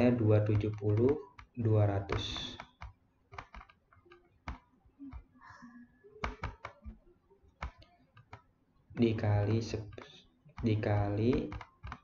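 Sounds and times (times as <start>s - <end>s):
stylus tapping on tablet: 0.5s - 5.4s, 6.2s - 7.0s, 7.6s - 8.5s, 9.4s - 12.0s.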